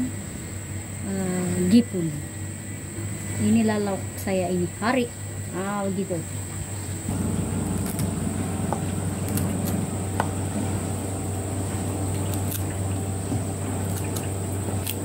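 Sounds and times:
steady low hum: 0.0 - 15.0
thin high whine: 6.8 - 14.8
fruit pods pried off: 7.6 - 8.2, 11.8 - 15.0.

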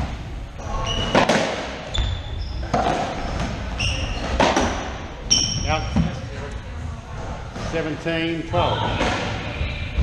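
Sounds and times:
racquetball hitting walls: 0.0 - 6.2
sneakers squeaking on hardwood: 0.6 - 6.2.

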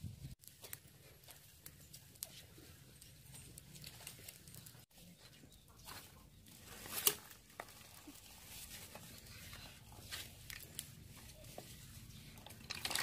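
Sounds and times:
pot scraping: 6.6 - 13.0.

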